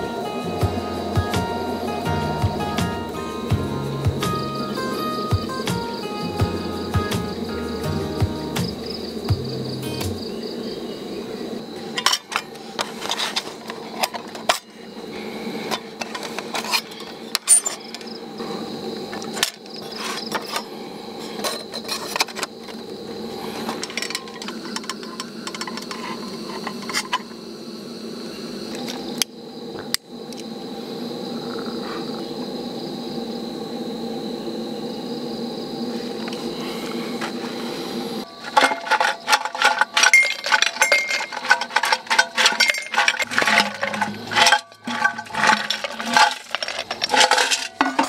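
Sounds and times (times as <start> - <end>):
insects droning: 0.0 - 48.0
camping gear clinking and knocking: 11.8 - 14.7, 15.7 - 18.1, 23.6 - 27.3, 38.3 - 48.0.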